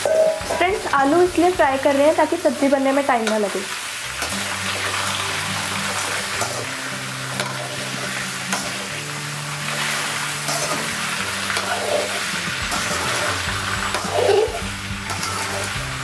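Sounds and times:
potatoes sizzling in oil: 0.0 - 16.0
spatula scraping a pan: 9.6 - 16.0.

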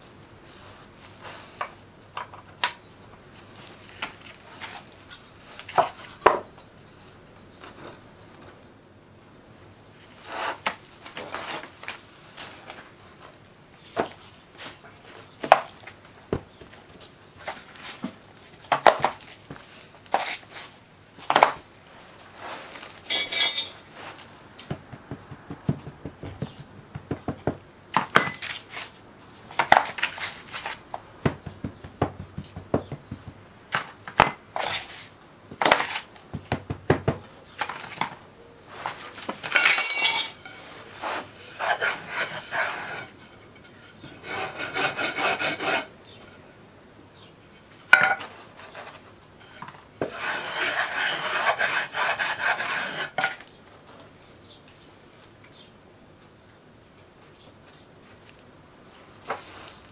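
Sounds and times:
wooden bar scraping across flask: 38.8 - 46.4, 48.0 - 53.4.

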